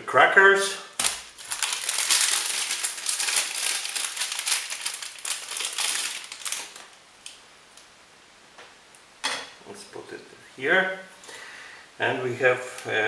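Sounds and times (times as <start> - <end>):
plastic wrapper crinkling: 1.0 - 7.4.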